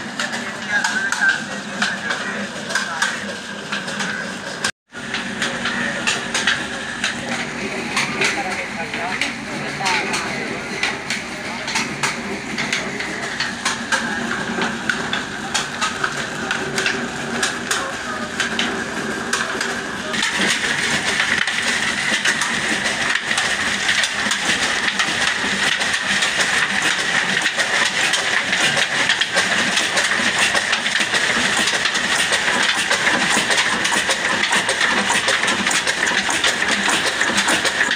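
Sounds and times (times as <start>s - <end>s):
belt-driven machinery clatter: 0.0s - 37.9s
diesel engine running: 0.0s - 37.9s.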